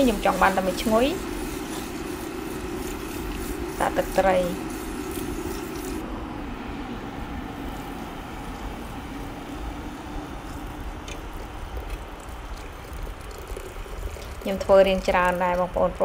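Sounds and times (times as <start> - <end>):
liquid simmering and bubbling: 0.0 - 16.0
water pouring into a pot: 9.6 - 16.0.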